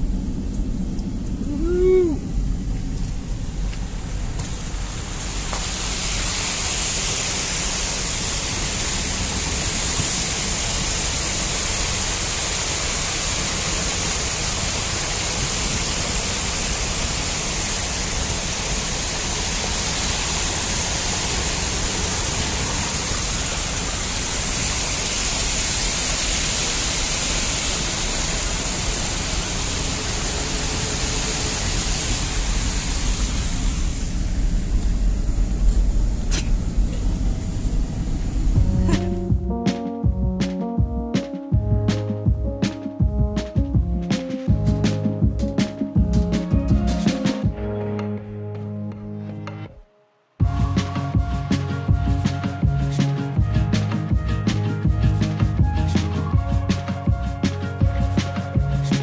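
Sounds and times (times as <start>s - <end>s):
water cascading down spillway: 0.0s - 36.0s, 50.4s - 59.0s
low vehicle rumble: 0.0s - 49.6s, 50.4s - 59.0s.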